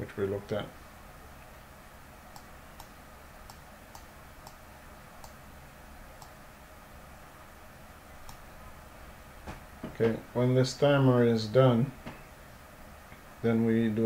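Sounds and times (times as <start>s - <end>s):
faint room hum: 0.0s - 14.0s
computer mouse clicking: 2.3s - 4.6s, 5.2s - 5.4s, 8.2s - 8.4s.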